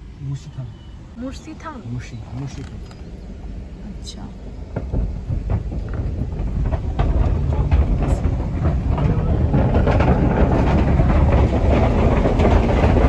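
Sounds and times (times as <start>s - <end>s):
car rumbling over steel bridge: 0.0s - 13.0s.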